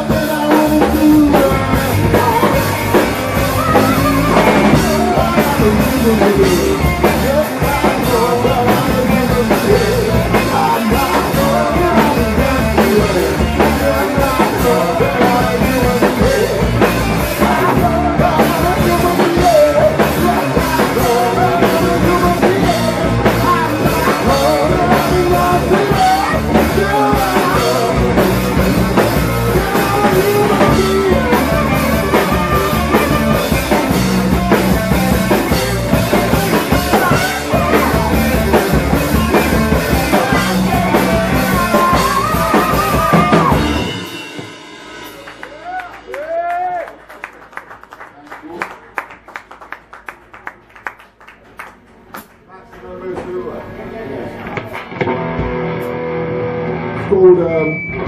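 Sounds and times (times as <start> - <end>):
person singing: 0.0 - 44.4
drum kit hitting steadily: 0.0 - 46.9
loud live rock band: 0.0 - 48.0, 53.6 - 58.0.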